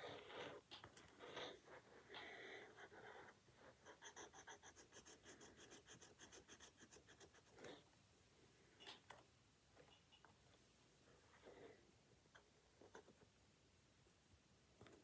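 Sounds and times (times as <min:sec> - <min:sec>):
pencil scratching on paper: 0:02.6 - 0:07.8.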